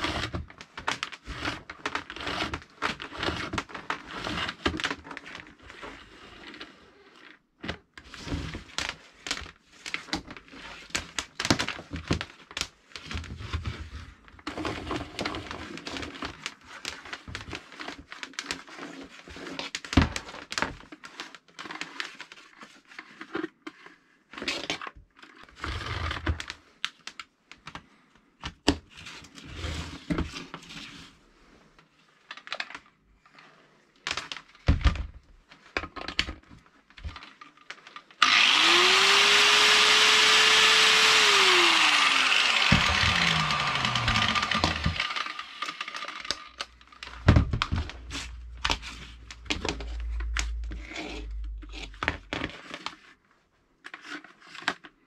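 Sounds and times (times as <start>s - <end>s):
power cord sliding and rustling: 38.2s - 50.0s.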